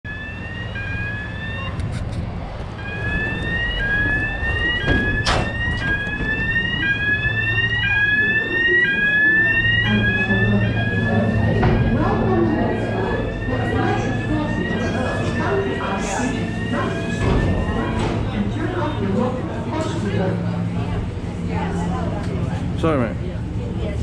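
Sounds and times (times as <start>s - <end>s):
electronic warning beeps: 2.8s - 19.1s.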